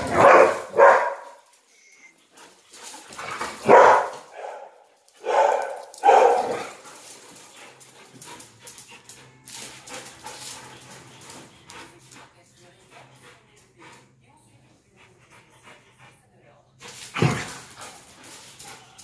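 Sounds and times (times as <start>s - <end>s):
dogs barking: 0.0s - 1.5s, 3.5s - 7.2s
dogs scuffling: 0.0s - 14.2s, 16.8s - 19.0s.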